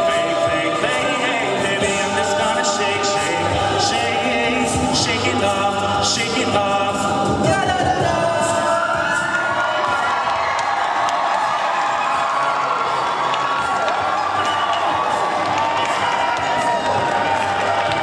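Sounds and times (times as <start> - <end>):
male a cappella group singing: 0.0 - 10.0
audience cheering: 9.2 - 18.0.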